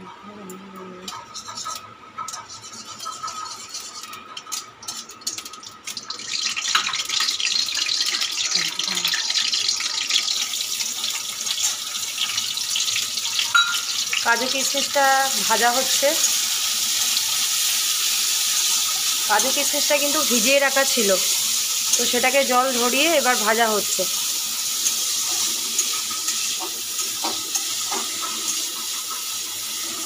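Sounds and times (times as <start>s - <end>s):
nuts sizzling in hot oil: 1.0s - 30.0s
spatula scraping a metal pan: 1.1s - 5.1s.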